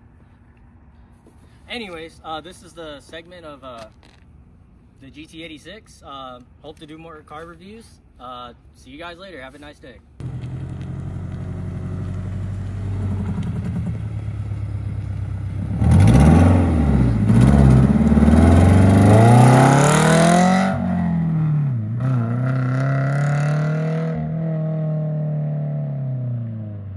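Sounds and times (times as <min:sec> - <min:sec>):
car engine revving: 0:10.2 - 0:26.9.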